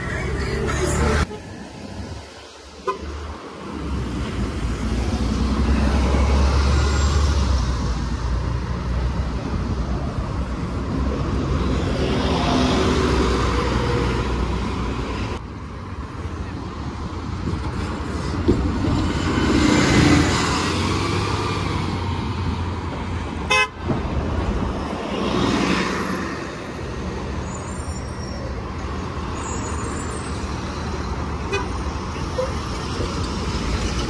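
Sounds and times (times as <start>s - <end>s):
bus passing close: 0.0s - 34.0s
passing cars: 0.0s - 34.0s
vehicle horn toot: 23.5s - 23.8s.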